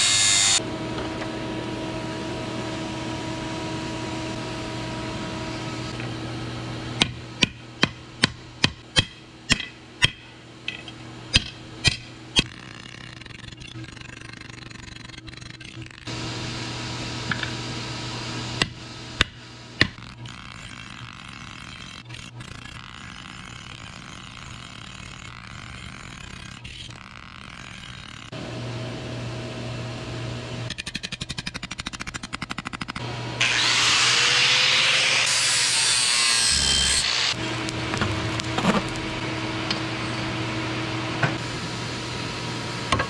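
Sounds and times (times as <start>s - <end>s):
angle grinder grinding steel: 0.0s - 0.6s, 19.8s - 28.3s, 33.4s - 40.4s.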